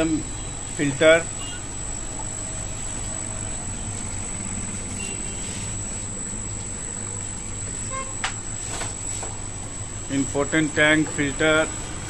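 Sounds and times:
low hum of air pumps: 0:00.0 - 0:12.0
thin high whine: 0:00.0 - 0:12.0.

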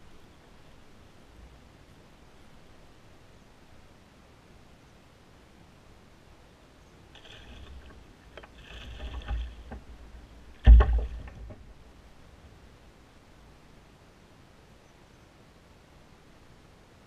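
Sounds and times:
loud splash: 0:07.2 - 0:09.8, 0:10.5 - 0:11.6
fish splashing and thrashing: 0:07.2 - 0:11.8.

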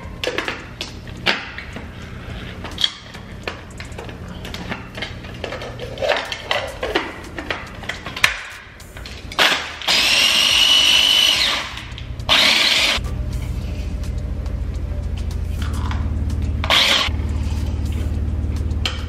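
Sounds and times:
food processor pulsing: 0:09.8 - 0:13.0, 0:16.6 - 0:17.1.

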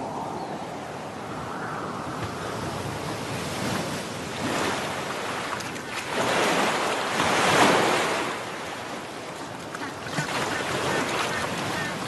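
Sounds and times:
ocean waves washing in: 0:00.0 - 0:12.0.

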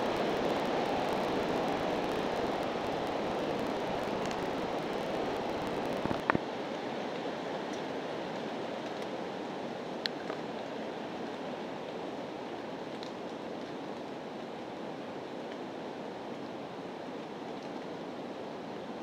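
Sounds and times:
steady rushing hiss: 0:00.0 - 0:09.9.

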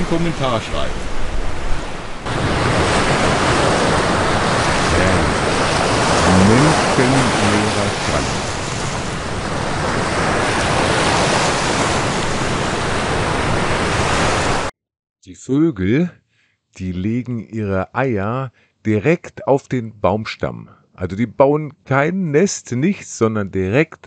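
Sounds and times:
surf washing onto beach: 0:00.0 - 0:14.7
wind on microphone: 0:00.0 - 0:14.7
faint voice: 0:04.9 - 0:05.4, 0:06.3 - 0:08.2.

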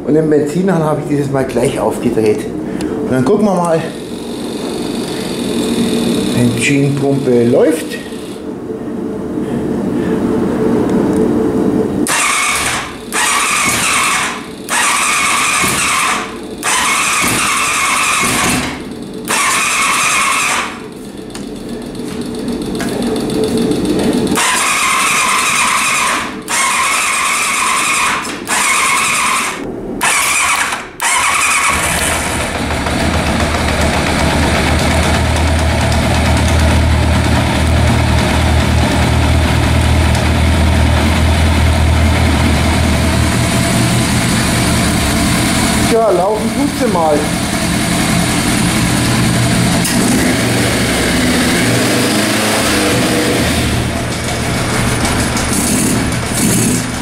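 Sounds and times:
electric starter cranking: 0:03.6 - 0:08.4, 0:12.0 - 0:57.0
motorcycle engine idling: 0:31.7 - 0:50.9.

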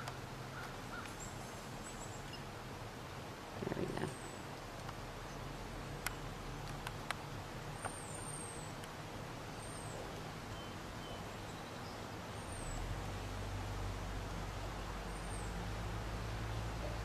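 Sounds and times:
birds chirping: 0:00.0 - 0:02.6, 0:03.6 - 0:04.5, 0:07.7 - 0:13.4, 0:14.6 - 0:15.7.

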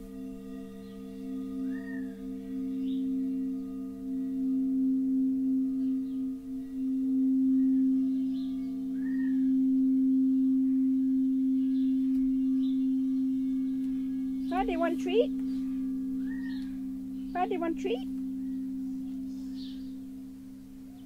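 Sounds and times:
crystal singing bowls ringing: 0:00.0 - 0:21.0.

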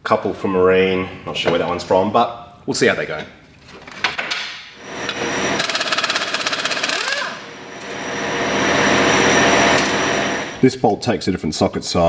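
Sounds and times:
air impact wrench rattling: 0:05.6 - 0:07.5.

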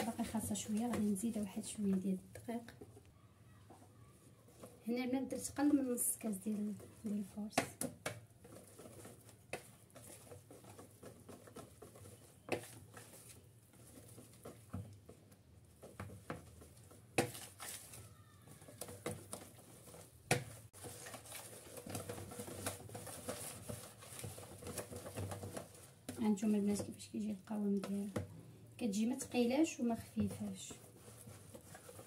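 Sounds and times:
whisk scraping plastic bowl: 0:00.0 - 0:02.9, 0:03.7 - 0:32.0.

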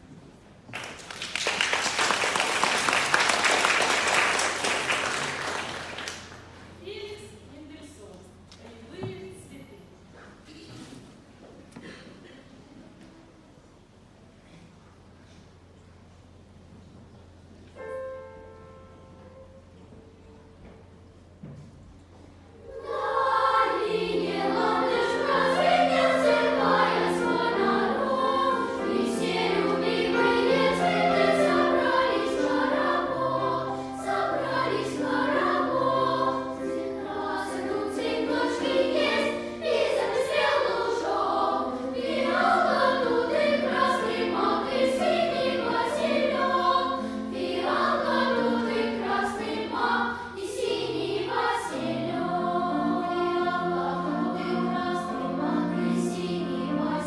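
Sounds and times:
children's choir singing: 0:01.6 - 0:06.4, 0:22.5 - 0:57.0.

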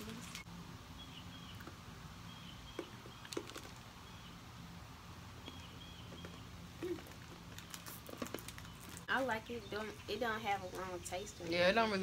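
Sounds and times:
bird chirping: 0:00.3 - 0:04.6, 0:05.3 - 0:12.0.

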